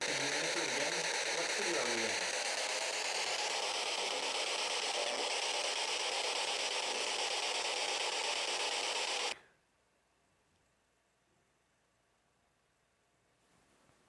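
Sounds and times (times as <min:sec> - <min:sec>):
radio static hiss: 0:00.0 - 0:09.4.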